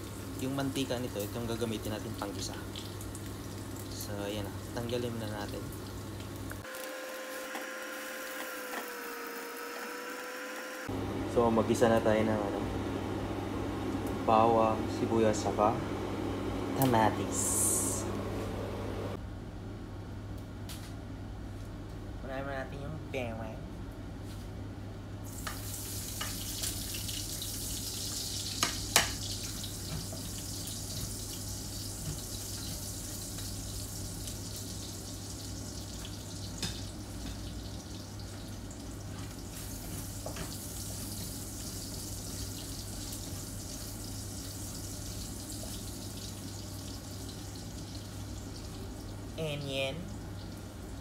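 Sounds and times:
garlic sizzling in a frying pan: 0.0s - 9.7s, 25.2s - 51.0s.

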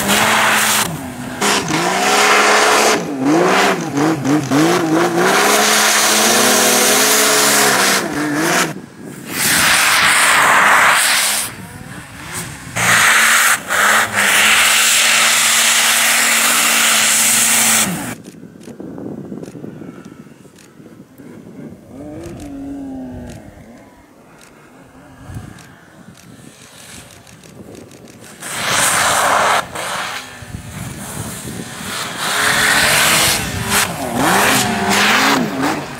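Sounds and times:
snowmobile engine revving: 0.0s - 18.2s, 19.8s - 35.9s
loud rushing hiss: 9.2s - 11.6s.

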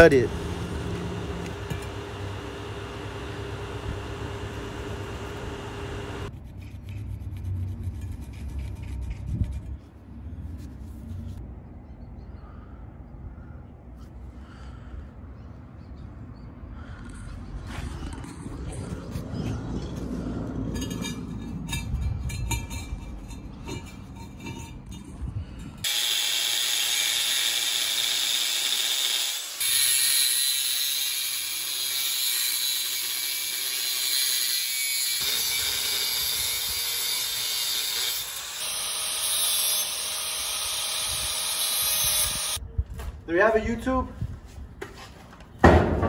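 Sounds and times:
angle grinder cutting steel pipe: 0.0s - 6.3s, 25.8s - 42.6s
low rumble: 16.8s - 25.8s.

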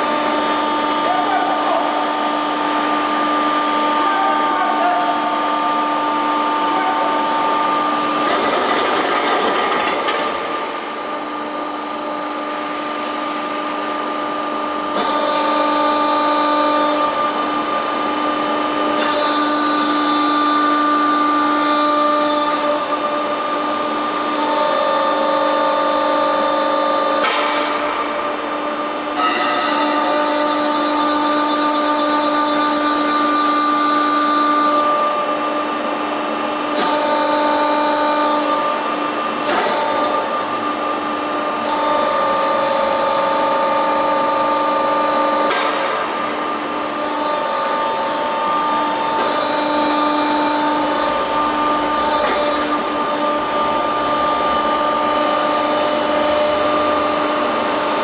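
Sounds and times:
hydraulic power unit whining hum: 0.0s - 58.0s.

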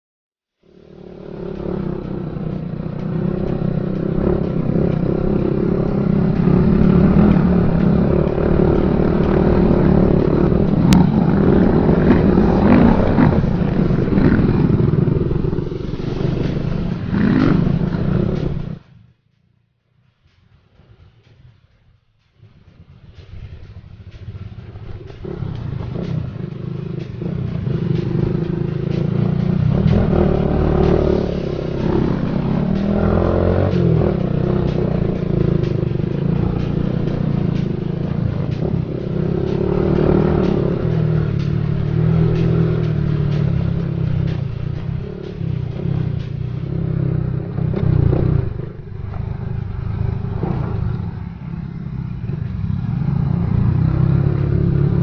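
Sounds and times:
small motorcycle engine revving: 0.6s - 18.8s, 25.0s - 55.0s.

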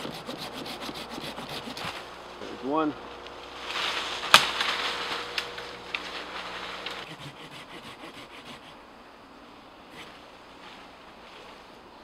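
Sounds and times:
saw rasping through wood: 0.0s - 2.0s, 7.0s - 8.8s.

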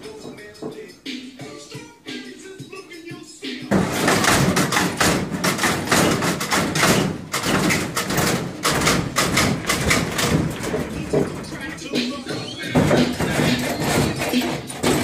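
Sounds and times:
car bouncing thuds: 3.7s - 15.0s.

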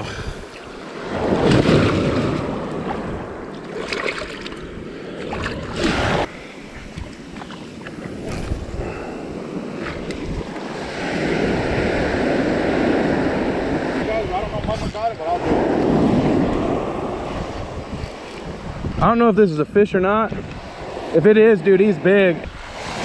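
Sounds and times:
surf washing on sand: 0.0s - 23.0s.

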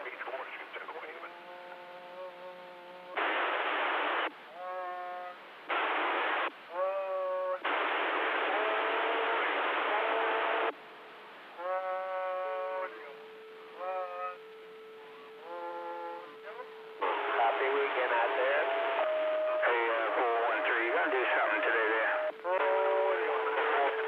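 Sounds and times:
radio static hiss: 0.0s - 24.0s
wavering radio tones: 11.6s - 24.0s.

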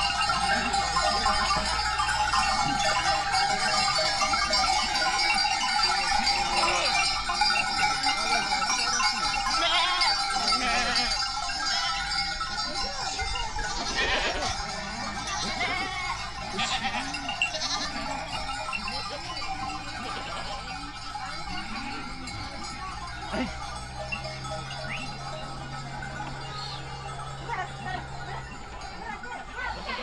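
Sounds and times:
goat bells ringing: 0.0s - 30.0s
goats bleating: 6.2s - 7.5s, 9.3s - 12.4s, 13.1s - 18.3s, 19.8s - 20.8s, 21.6s - 30.0s.

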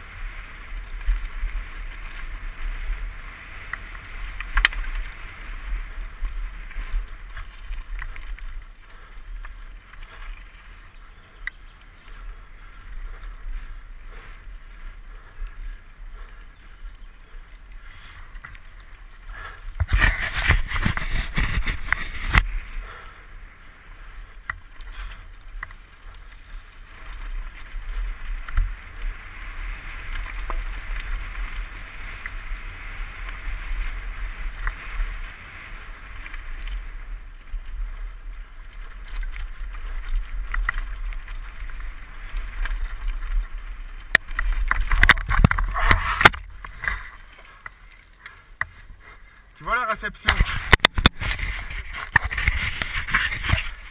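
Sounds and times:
bike rattling over ground: 0.0s - 15.0s, 16.9s - 48.9s, 50.2s - 53.9s
wind rush on microphone: 17.5s - 23.0s, 50.2s - 53.9s
clothing rubbing on microphone: 19.8s - 22.5s, 50.3s - 53.9s.

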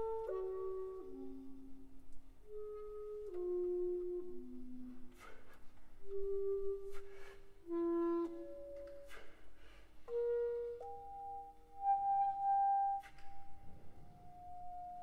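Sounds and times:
clarinet playing slow solo: 0.0s - 5.4s, 6.0s - 9.3s, 10.1s - 13.3s.

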